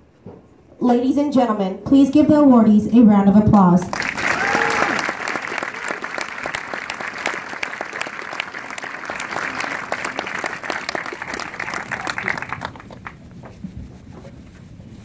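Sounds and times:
crowd applauding: 3.8 - 13.2.

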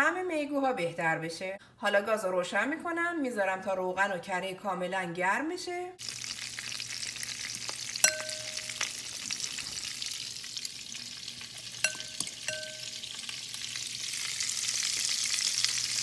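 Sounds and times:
oil sizzling in a frying pan: 6.0 - 16.0.

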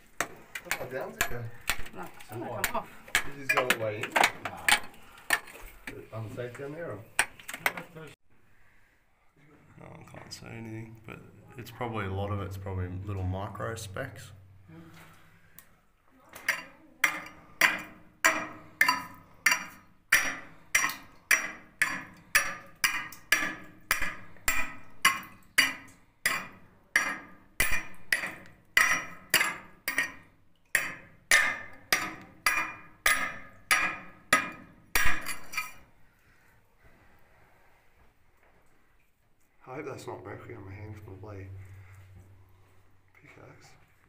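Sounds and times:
steel tool chipping rock: 17.0 - 30.2, 30.8 - 35.8.

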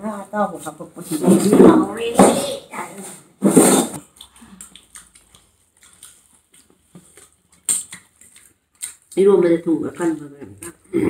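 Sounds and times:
chewing mouth sounds: 4.0 - 9.3
fingers clicking in food: 4.0 - 9.3.

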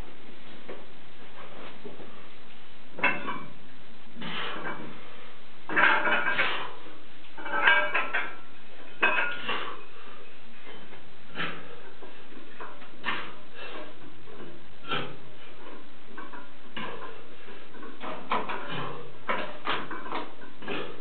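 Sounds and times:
weight plates clinking and rattling: 3.0 - 3.6, 5.7 - 21.0.

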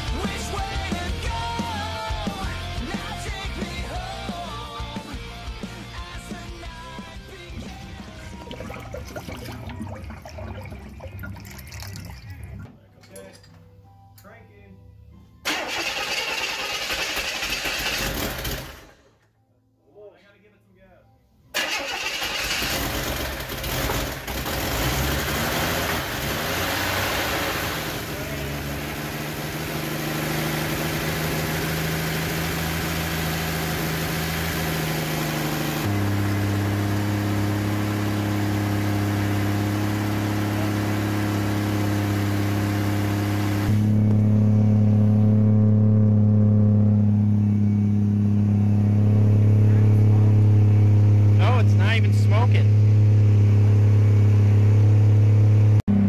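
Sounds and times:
car engine running: 6.5 - 12.4, 22.7 - 56.0.

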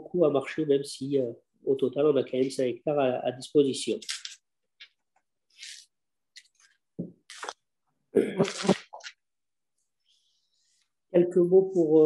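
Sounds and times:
person coughing: 8.1 - 8.9
person breathing: 10.0 - 11.0.

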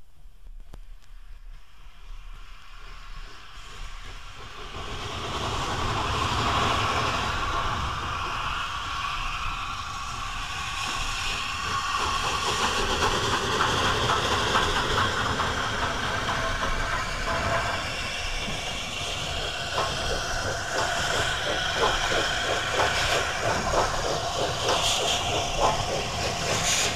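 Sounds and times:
steam hiss: 0.8 - 26.9
steam locomotive running: 1.1 - 26.9
quick regular chuffing beat: 10.8 - 26.9.

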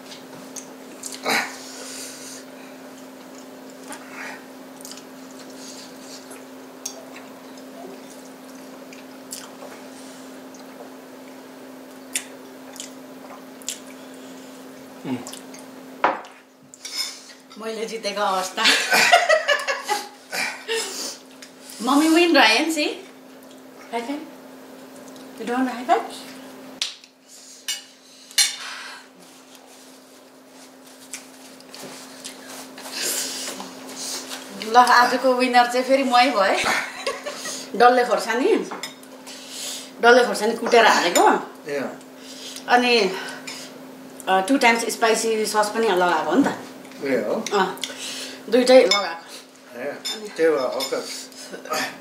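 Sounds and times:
soft wet chewing: 4.7 - 15.7, 23.3 - 23.7, 24.8 - 25.4, 29.4 - 34.7.

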